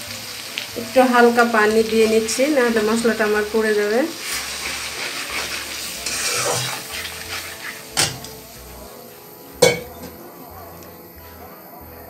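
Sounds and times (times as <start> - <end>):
paste sizzling in hot oil: 0.0 - 11.4
metal spatula scraping pan: 4.1 - 8.5.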